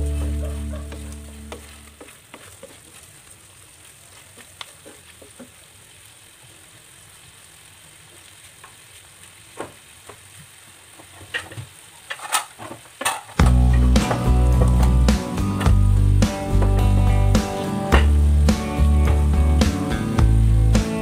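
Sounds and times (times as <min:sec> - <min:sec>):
stick stirring a pan: 0:00.0 - 0:03.4, 0:10.9 - 0:19.6
chicken sizzling in a frying pan: 0:00.0 - 0:21.0
crackles and pops: 0:00.1 - 0:21.0.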